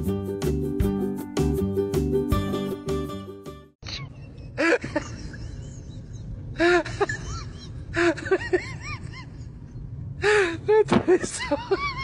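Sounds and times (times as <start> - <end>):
person laughing breathlessly: 3.8 - 9.6.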